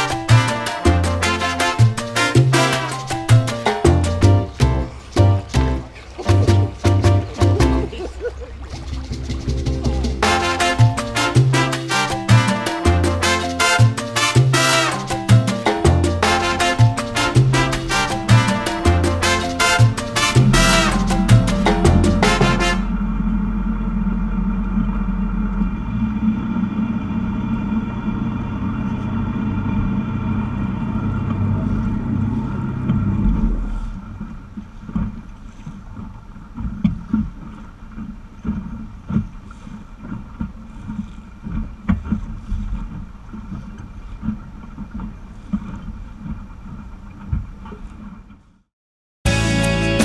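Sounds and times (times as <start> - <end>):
boat diesel engine droning: 0.0 - 34.8.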